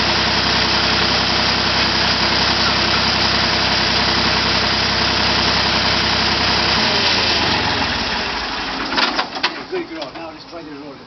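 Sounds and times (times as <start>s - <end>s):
dozer engine idling: 0.0s - 11.0s.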